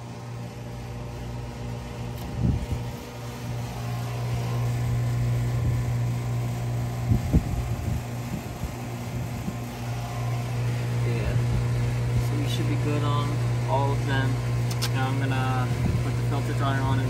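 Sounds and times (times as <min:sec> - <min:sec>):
air conditioner hum: 0:00.0 - 0:17.0.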